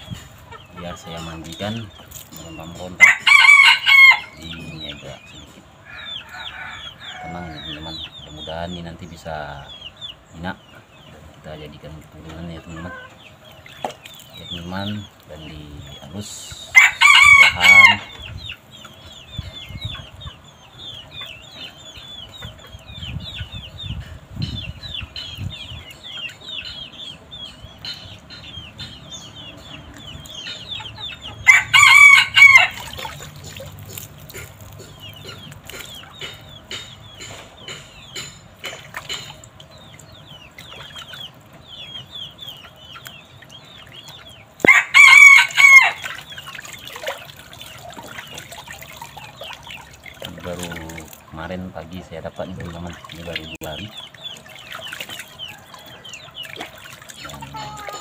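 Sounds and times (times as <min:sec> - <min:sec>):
rooster crowing: 0:03.0 - 0:04.4, 0:16.8 - 0:18.1, 0:31.4 - 0:32.8, 0:44.6 - 0:46.0.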